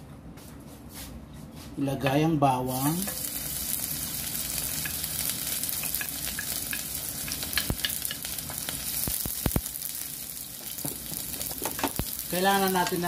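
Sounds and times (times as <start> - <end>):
garlic sizzling in oil: 2.7 - 13.0.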